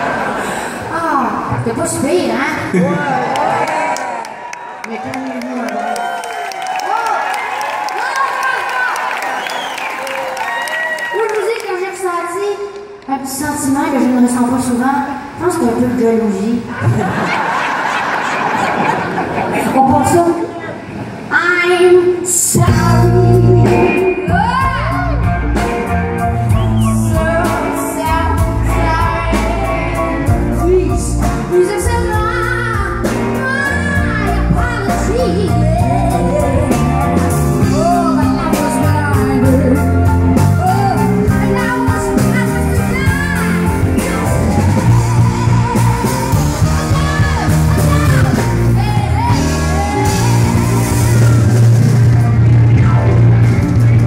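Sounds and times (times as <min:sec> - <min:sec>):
woman singing into a microphone: 0:21.8 - 0:25.2, 0:26.9 - 0:37.0, 0:37.6 - 0:51.2
bass line: 0:22.5 - 0:54.0
electric guitar: 0:22.5 - 0:54.0
steady drum beat: 0:22.6 - 0:54.0.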